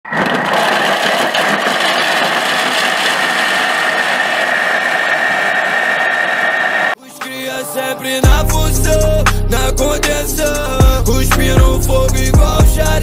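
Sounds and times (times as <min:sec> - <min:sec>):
food processor motor whirring: 0:00.0 - 0:07.0.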